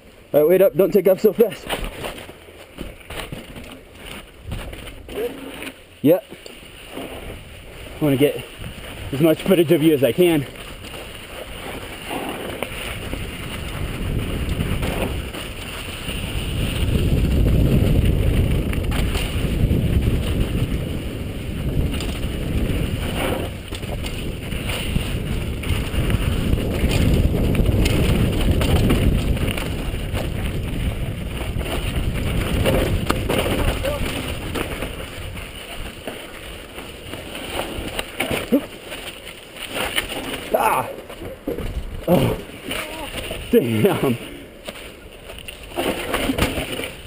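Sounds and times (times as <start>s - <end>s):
bike tyres rattling over rocky trail: 0.0s - 47.0s
bike knocking over bumps: 1.6s - 5.7s, 10.5s - 43.9s, 44.6s - 47.0s
wind rushing over microphone: 6.9s - 38.2s.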